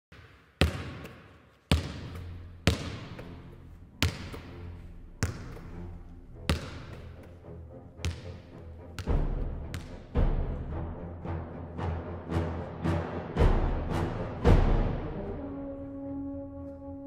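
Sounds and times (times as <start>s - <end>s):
basketball bouncing on hard floor: 0.6s - 3.2s, 4.0s - 4.5s, 5.2s - 5.6s, 6.5s - 7.0s, 8.0s - 8.2s, 9.0s - 9.9s.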